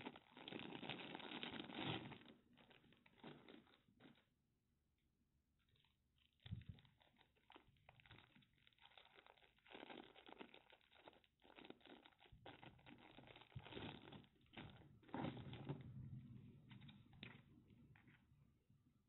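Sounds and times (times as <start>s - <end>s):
plastic bag crinkling: 0.0s - 4.4s, 5.7s - 16.1s.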